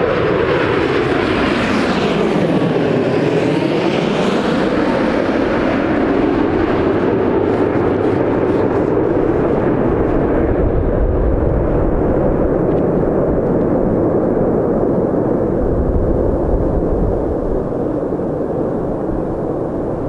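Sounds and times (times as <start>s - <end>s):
jet engines rumbling: 0.0s - 20.0s
wind buffeting microphone: 0.0s - 20.0s.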